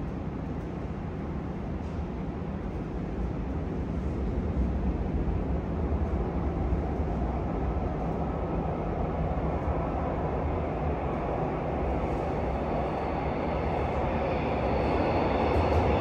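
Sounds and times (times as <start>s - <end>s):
electric train rumbling in tunnel: 0.0s - 16.0s.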